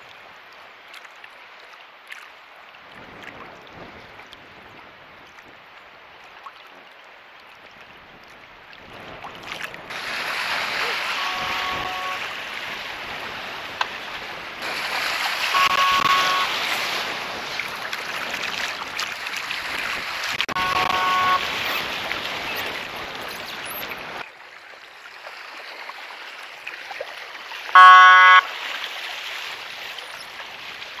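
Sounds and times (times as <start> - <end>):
water noise: 0.0 - 31.0
wind: 0.0 - 31.0
horn toot: 10.8 - 12.3, 15.5 - 16.7, 20.5 - 21.7, 27.8 - 28.5.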